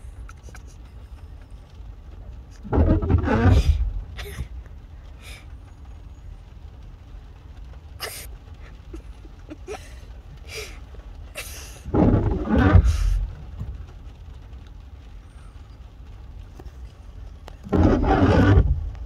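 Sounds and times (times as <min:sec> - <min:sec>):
loud rough burst: 0:17.6 - 0:18.8.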